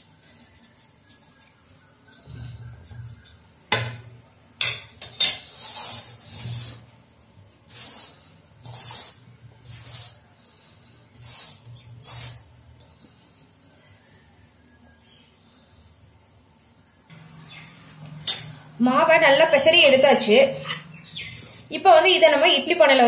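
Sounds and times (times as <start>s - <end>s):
flour rustling scrapes in pan: 0.0s - 3.4s, 5.4s - 13.6s.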